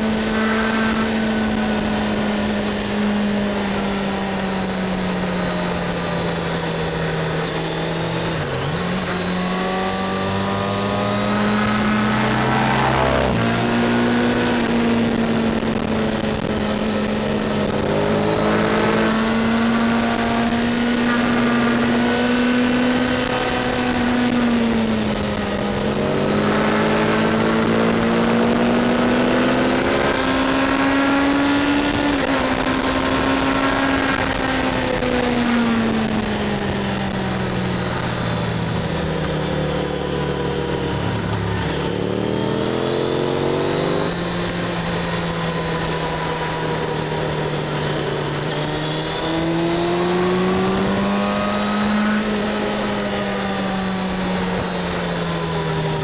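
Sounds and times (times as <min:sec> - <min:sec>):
motorcycle engine running hard: 0:00.0 - 0:56.0
wind rushing: 0:10.2 - 0:15.5.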